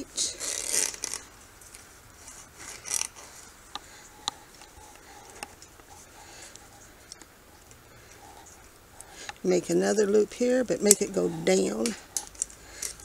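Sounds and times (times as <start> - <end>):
wire scraping and rasping: 0.0 - 13.0
wire and pliers clicking: 10.8 - 13.0.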